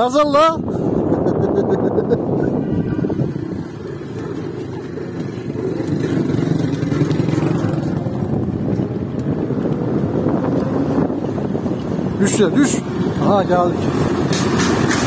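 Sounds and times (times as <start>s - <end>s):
buggy rumbling over paving stones: 3.2s - 15.0s.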